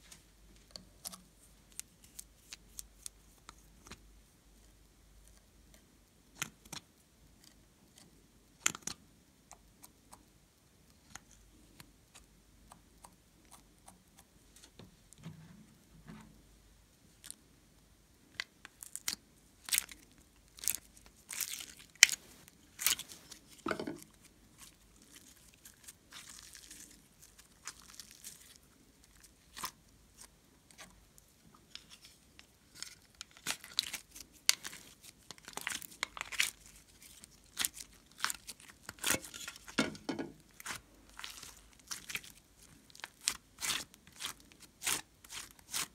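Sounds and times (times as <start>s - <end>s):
clay scraping and peeling: 20.7s - 45.9s.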